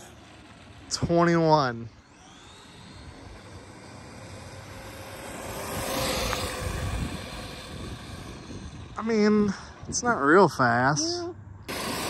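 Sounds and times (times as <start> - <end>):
electric motor whine: 0.0 - 9.4
rc truck tyres on ground: 0.0 - 12.0.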